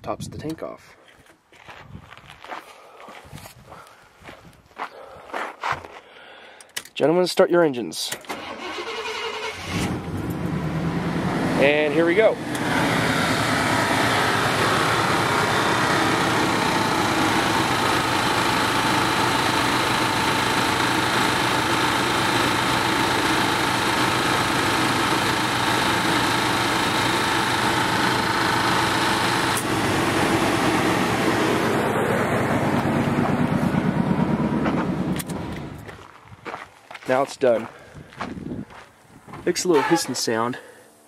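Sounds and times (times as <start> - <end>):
truck engine running: 8.7 - 40.1
steady whine: 10.0 - 36.2
air compressor pumping: 12.5 - 31.2.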